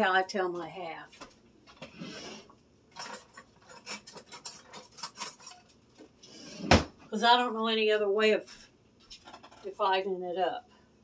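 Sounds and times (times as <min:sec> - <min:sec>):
utensil scraping in a bowl: 0:01.9 - 0:06.7.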